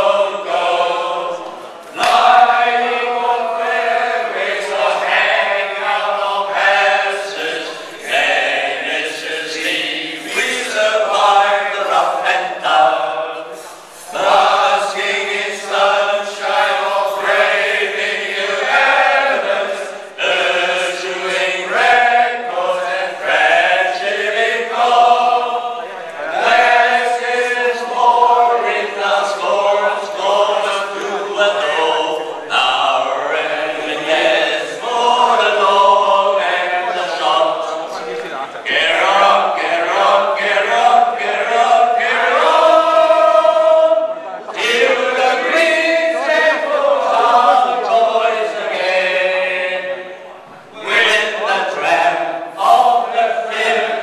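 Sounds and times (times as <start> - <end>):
men singing together: 0.0 - 38.1, 38.7 - 50.2, 50.8 - 54.0
singers breathing: 13.5 - 14.2.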